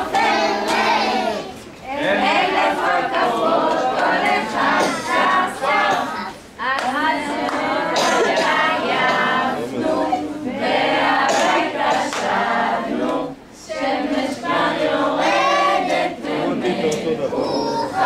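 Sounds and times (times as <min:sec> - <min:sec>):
children singing: 0:00.0 - 0:18.0
woman singing: 0:01.9 - 0:12.5.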